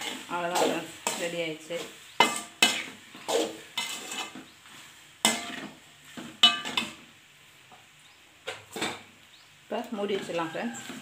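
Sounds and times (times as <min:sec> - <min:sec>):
spoon stirring pasta in pot: 0:02.2 - 0:04.6
spoon clanking against metal pot: 0:06.4 - 0:07.0.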